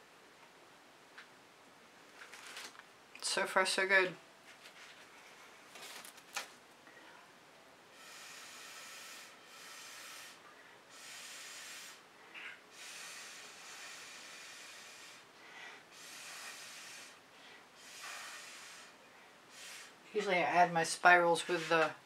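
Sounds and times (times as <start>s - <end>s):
person breathing softly: 6.8s - 20.0s.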